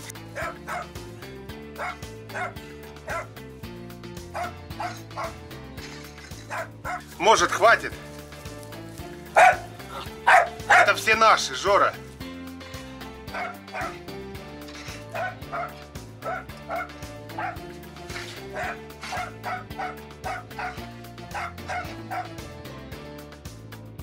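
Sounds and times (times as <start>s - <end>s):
background music: 0.0s - 24.0s
small dog yapping: 4.4s - 5.3s, 9.4s - 9.7s, 10.3s - 10.9s, 13.4s - 14.0s, 18.5s - 22.3s.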